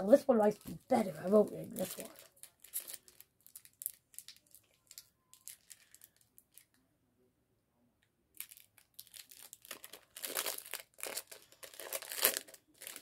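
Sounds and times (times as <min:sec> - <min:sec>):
foil wrapper tearing and crinkling: 0:01.0 - 0:06.7, 0:08.4 - 0:13.0.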